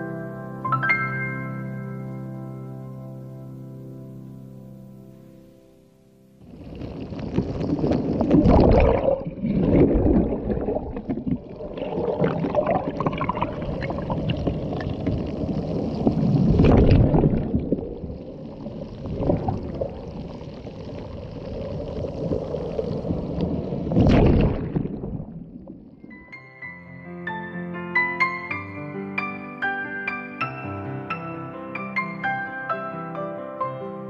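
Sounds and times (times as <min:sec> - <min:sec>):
sea waves washing in: 0:06.4 - 0:26.3.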